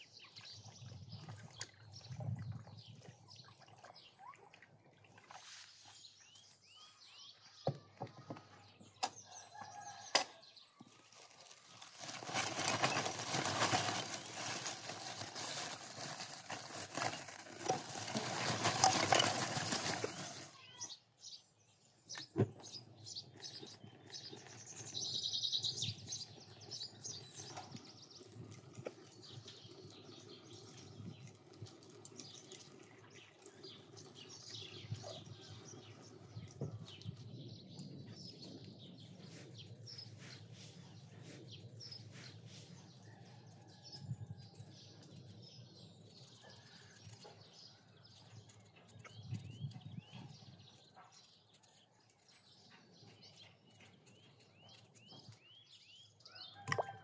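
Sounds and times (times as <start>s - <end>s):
loud rustling crackling: 11.1s - 20.6s.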